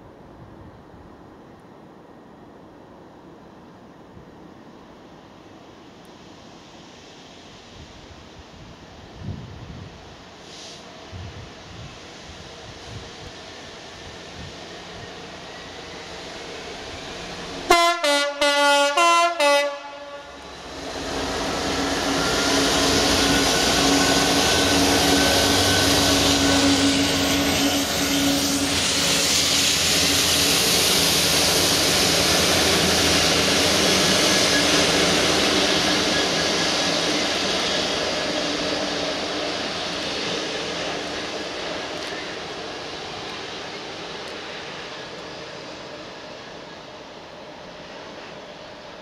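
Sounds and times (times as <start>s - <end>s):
train wheel and wagon noise: 0.0s - 49.0s
diesel locomotive droning: 9.0s - 49.0s
two-tone train horn blasts: 17.7s - 20.5s.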